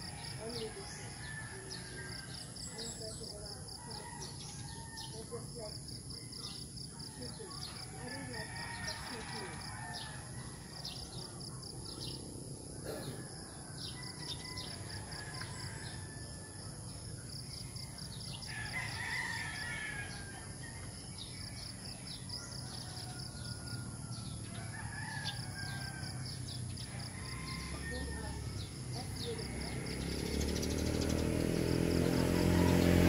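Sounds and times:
roosters crowing: 0:00.0 - 0:05.5, 0:07.0 - 0:11.3, 0:12.8 - 0:17.0, 0:18.1 - 0:33.0
small birds chirping: 0:20.0 - 0:33.0.

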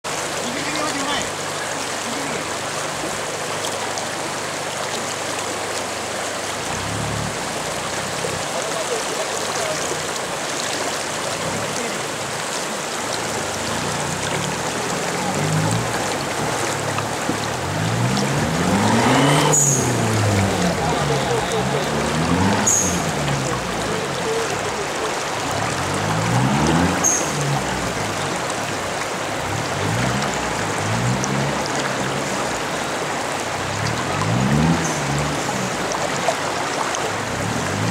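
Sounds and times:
river water rushing: 0:00.0 - 0:37.9
pickup truck engine revving: 0:13.2 - 0:24.2.

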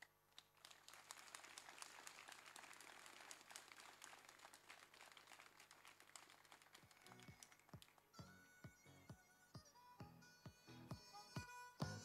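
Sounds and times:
faint audience applause: 0:00.0 - 0:08.2.

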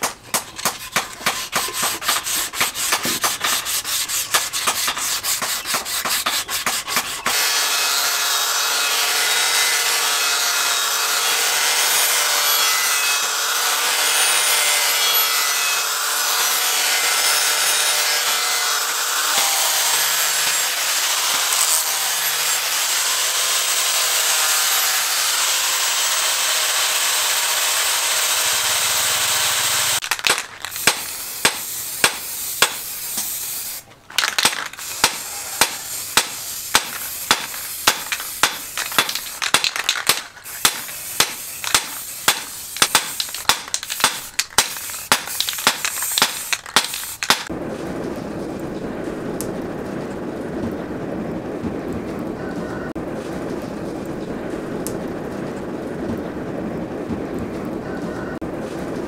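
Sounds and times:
angle grinder grinding steel: 0:00.4 - 0:30.1, 0:30.8 - 0:47.5
rubbing on wooden handle: 0:00.5 - 0:07.3.

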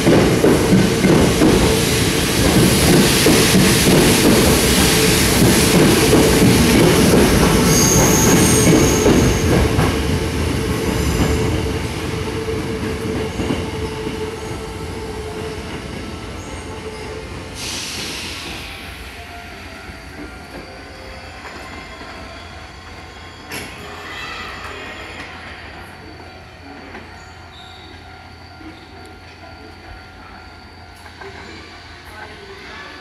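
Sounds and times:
train wheels clattering on rails: 0:00.0 - 0:14.3
train humming tone: 0:00.0 - 0:33.0
high squeal: 0:07.5 - 0:09.6, 0:26.8 - 0:31.8.

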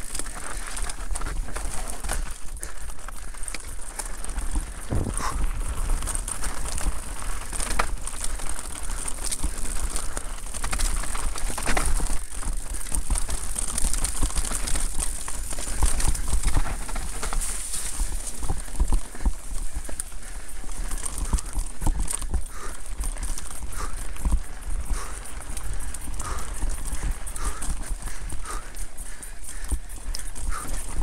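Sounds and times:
bike knocking and rattling: 0:00.0 - 0:31.0
tyres over dirt and stones: 0:00.0 - 0:31.0
constant low rumble: 0:00.2 - 0:12.3.

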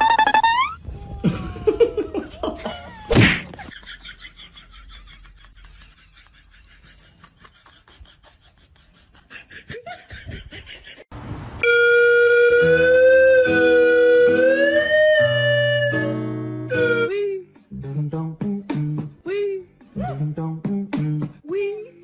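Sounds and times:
music with long bending notes: 0:11.7 - 0:17.1.

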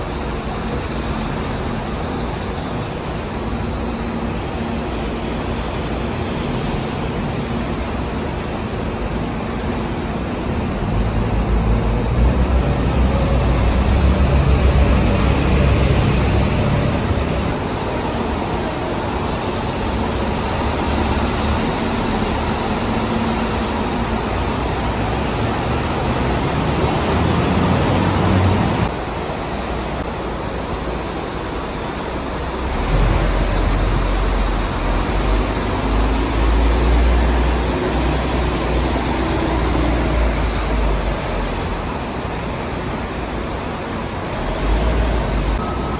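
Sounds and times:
bus engines rumbling: 0:00.0 - 0:45.9
traffic noise: 0:00.0 - 0:45.9.

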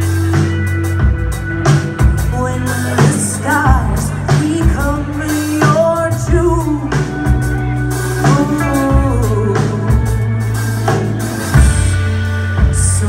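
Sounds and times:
bass: 0:00.0 - 0:13.0
drum kit: 0:00.0 - 0:13.0
electric guitar: 0:00.0 - 0:13.0
woman singing: 0:02.1 - 0:10.7, 0:12.6 - 0:13.0.

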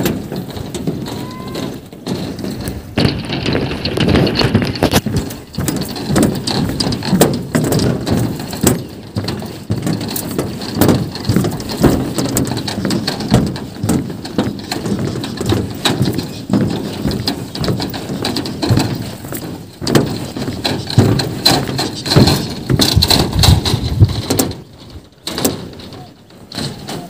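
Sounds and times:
footsteps on footbridge: 0:00.0 - 0:27.0
sharp clicks and knocks: 0:00.0 - 0:27.0.

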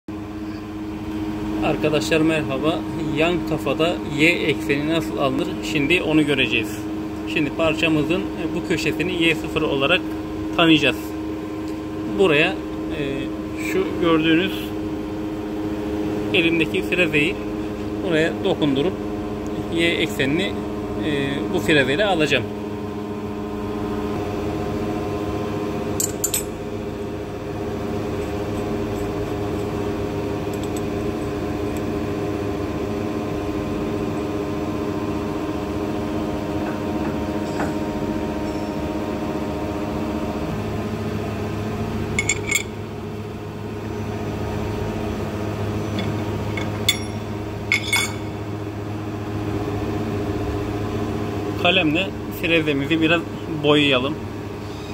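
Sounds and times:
milling machine hum: 0:00.1 - 0:54.9
sharp metallic clinks: 0:45.9 - 0:48.3.

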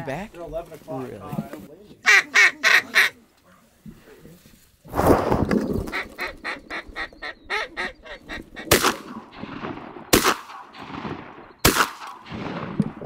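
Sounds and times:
ducks quacking: 0:02.0 - 0:03.2, 0:05.8 - 0:09.0
shotgun shots: 0:08.7 - 0:13.0.

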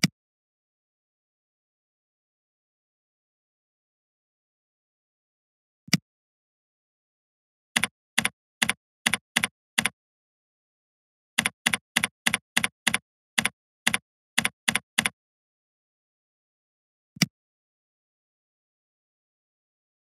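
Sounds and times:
keyboard keystrokes: 0:07.8 - 0:10.0, 0:11.4 - 0:15.2.

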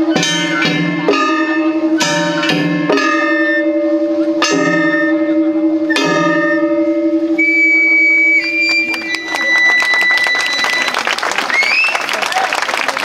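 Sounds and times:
metal gongs clanging: 0:00.0 - 0:09.4
high held note: 0:00.0 - 0:11.0
steady low tone: 0:00.0 - 0:11.0.

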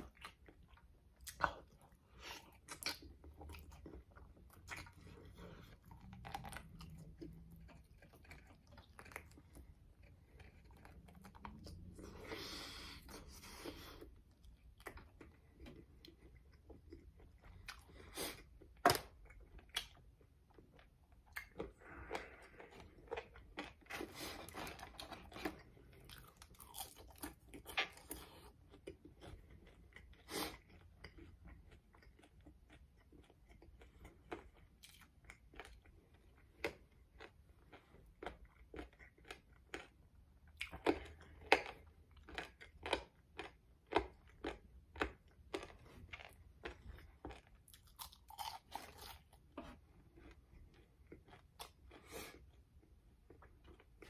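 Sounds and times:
person chewing: 0:00.0 - 0:54.0
person crunching crispy food: 0:22.6 - 0:28.3, 0:40.6 - 0:49.5.

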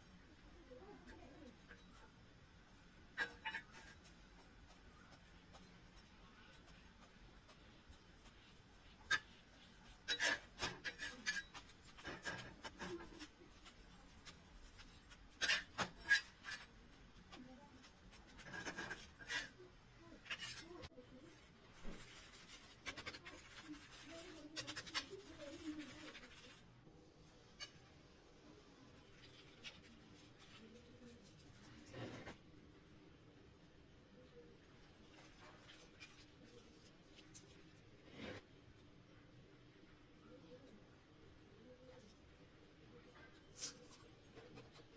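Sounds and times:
spatula scraping griddle: 0:03.2 - 0:05.8, 0:08.9 - 0:26.6, 0:31.6 - 0:32.4, 0:38.0 - 0:38.4.

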